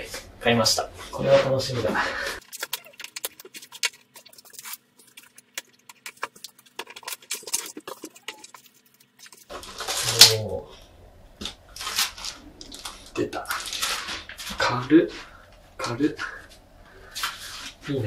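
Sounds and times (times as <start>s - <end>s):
plastic parts clicking and rattling: 2.4s - 10.3s, 11.4s - 14.5s
packaging rustling: 2.4s - 10.4s, 11.4s - 14.6s.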